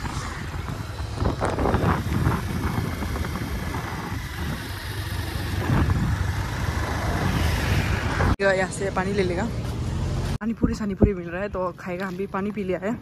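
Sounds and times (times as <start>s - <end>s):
motorcycle engine running: 0.0s - 10.4s.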